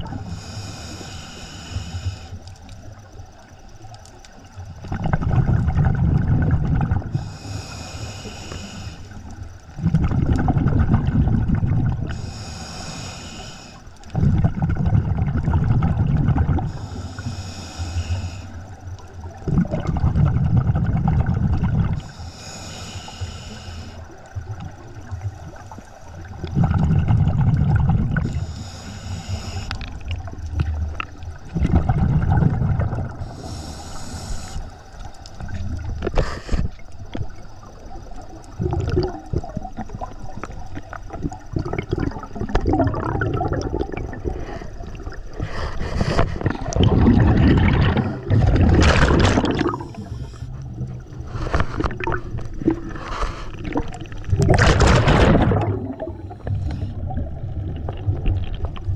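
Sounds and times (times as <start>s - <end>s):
regulator breath hiss: 0.2s - 2.6s, 7.1s - 9.3s, 12.1s - 14.1s, 16.7s - 18.8s, 22.0s - 24.2s, 28.2s - 30.0s, 33.2s - 35.3s, 36.0s - 36.8s, 49.7s - 50.6s, 52.9s - 53.8s
exhaust bubbles rushing: 9.8s - 12.1s, 14.2s - 16.7s, 26.4s - 28.3s, 31.5s - 33.2s, 41.5s - 44.4s, 46.5s - 50.2s, 53.6s - 58.9s.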